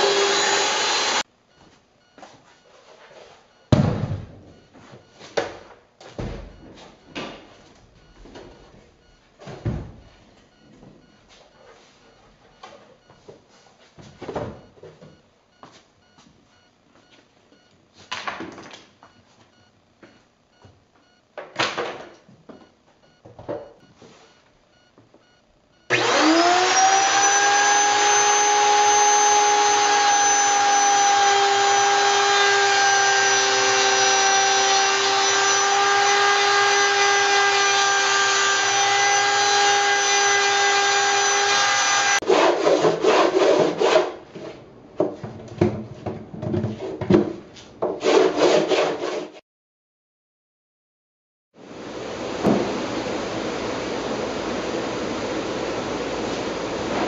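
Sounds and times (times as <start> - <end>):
electric router whining: 0.0 - 1.3, 25.9 - 42.2
knocks on wooden barrel: 3.7 - 4.4.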